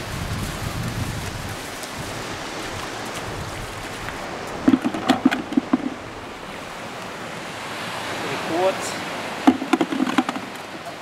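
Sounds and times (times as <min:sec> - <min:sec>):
surf: 0:00.0 - 0:11.0
wind: 0:00.0 - 0:11.0
gear clattering on pebbly sand: 0:03.0 - 0:06.0, 0:09.5 - 0:11.0.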